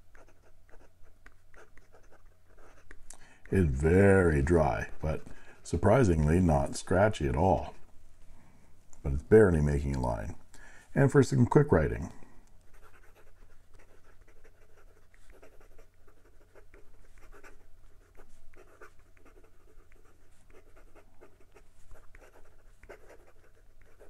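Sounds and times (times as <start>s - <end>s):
pen scratching on paper: 0.0s - 6.1s, 12.6s - 24.0s.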